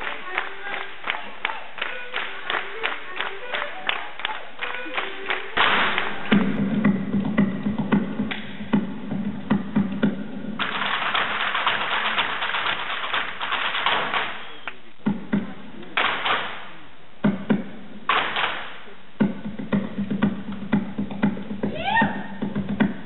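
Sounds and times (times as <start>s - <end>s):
audience applause: 0.0s - 6.4s, 10.6s - 14.8s
hard-shoe dance taps on wood: 19.2s - 21.8s.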